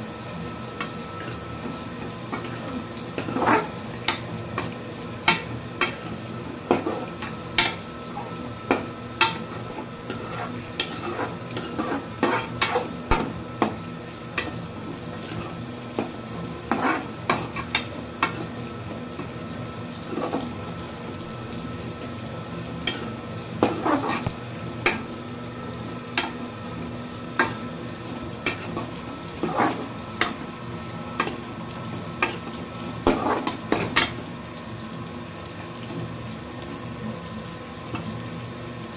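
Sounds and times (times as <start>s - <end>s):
food sizzling: 0.0s - 38.9s
metal spoon scraping a pan: 2.3s - 13.8s, 15.2s - 18.6s, 20.1s - 20.6s, 22.8s - 25.1s, 28.4s - 30.4s, 32.2s - 34.2s.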